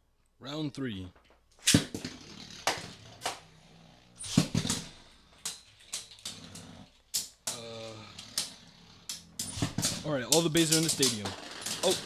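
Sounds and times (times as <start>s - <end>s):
spinning tops whirring: 8.2s - 12.0s
spinning tops striking: 8.3s - 12.0s.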